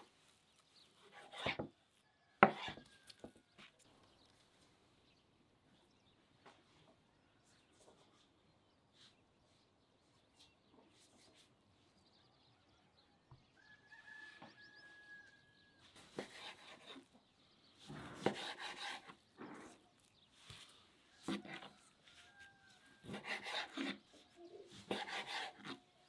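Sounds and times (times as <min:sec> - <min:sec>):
knife cutting meat on wooden board: 0:00.9 - 0:01.8, 0:02.4 - 0:03.4, 0:16.0 - 0:17.1, 0:17.9 - 0:19.8, 0:21.2 - 0:24.1, 0:24.7 - 0:25.9.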